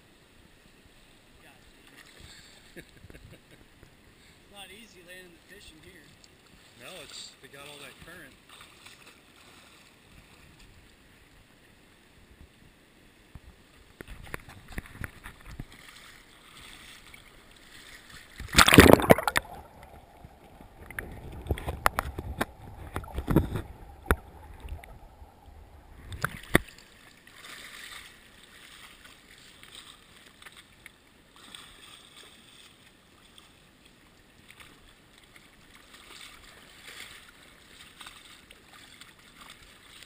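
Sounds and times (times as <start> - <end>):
underwater clicks and knocks: 13.4 - 15.8, 18.4 - 25.2, 25.9 - 26.8
muffled underwater rushing: 16.6 - 27.3
camera splashing into water: 18.2 - 25.0, 25.9 - 28.0
steady hum: 18.4 - 27.2.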